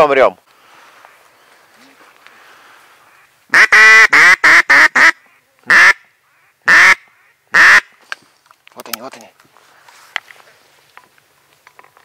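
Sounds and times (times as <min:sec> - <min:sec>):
duck quacking: 0:03.5 - 0:07.9.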